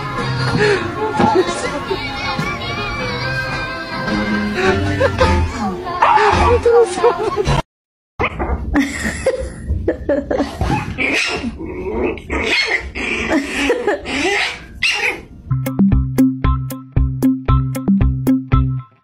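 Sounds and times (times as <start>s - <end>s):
dog yapping: 10.7s - 11.5s, 12.3s - 13.0s, 14.1s - 15.3s.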